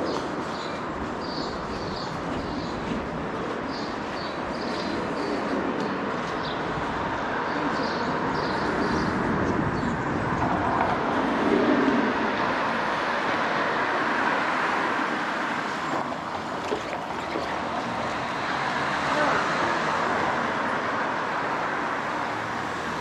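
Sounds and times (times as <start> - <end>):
road traffic noise: 0.0 - 23.0.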